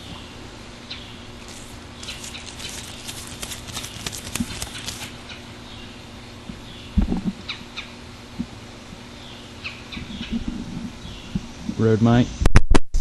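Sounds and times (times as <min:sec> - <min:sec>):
faint hum: 0:00.0 - 0:12.5
leaves rustling: 0:01.3 - 0:05.6.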